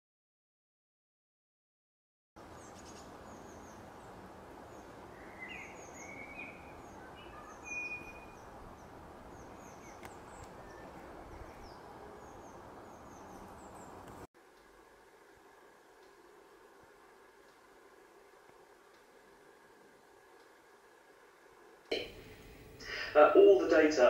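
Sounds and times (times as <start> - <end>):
songbirds chirping: 2.4 - 14.3
outdoor background hiss: 2.4 - 24.0
low whistled bird notes: 4.8 - 13.7.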